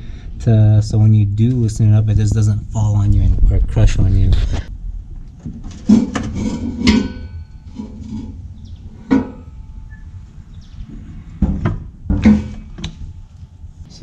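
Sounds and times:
metallic clanks and knocks: 0:05.4 - 0:08.4, 0:09.0 - 0:10.0, 0:11.4 - 0:13.0.

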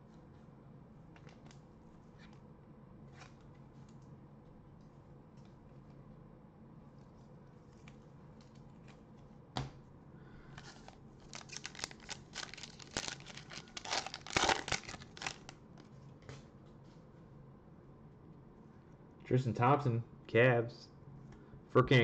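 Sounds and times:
plastic wrapper tearing and crinkling: 0:10.6 - 0:15.6.

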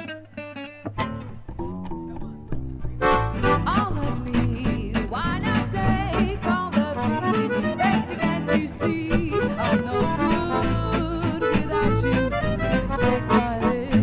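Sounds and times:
acoustic band music: 0:00.0 - 0:14.0.

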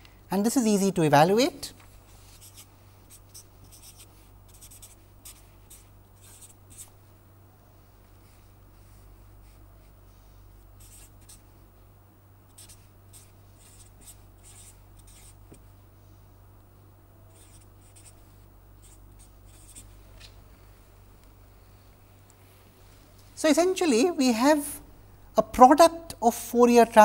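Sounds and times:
steady low hum: 0:00.0 - 0:27.0
marker scratching on paper: 0:02.1 - 0:07.0, 0:10.8 - 0:11.4, 0:12.5 - 0:15.4, 0:17.3 - 0:18.2, 0:18.8 - 0:19.9.

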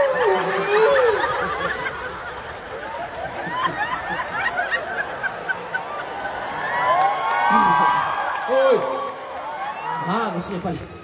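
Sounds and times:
audience laughing: 0:00.1 - 0:06.8, 0:07.4 - 0:08.2.

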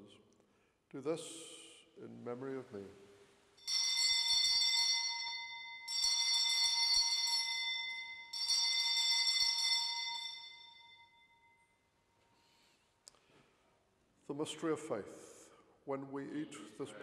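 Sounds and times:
altar bell ringing: 0:03.6 - 0:11.9.

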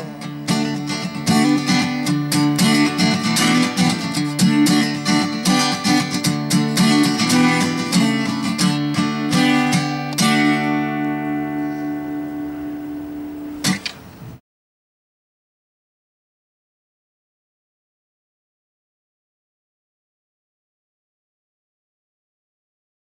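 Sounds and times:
acoustic guitar strumming: 0:00.0 - 0:14.1.

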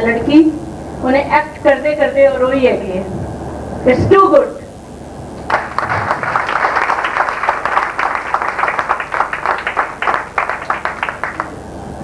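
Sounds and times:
group applause: 0:05.5 - 0:11.7.

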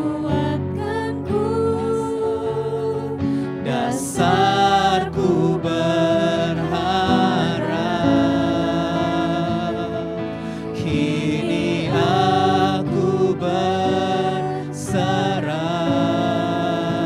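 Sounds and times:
acoustic guitar: 0:00.0 - 0:17.0
keyboard: 0:00.0 - 0:17.0
several singers singing: 0:00.0 - 0:17.0.

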